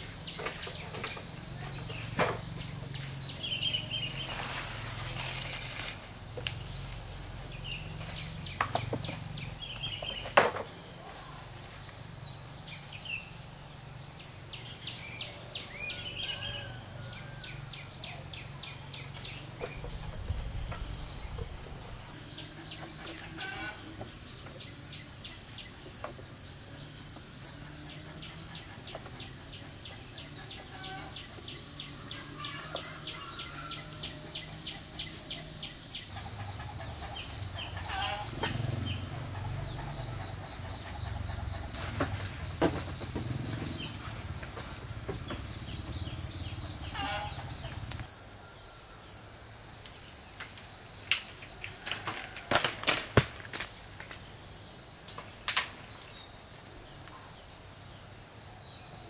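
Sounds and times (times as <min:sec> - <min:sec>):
high-pitched insect drone: 0:00.0 - 0:50.2.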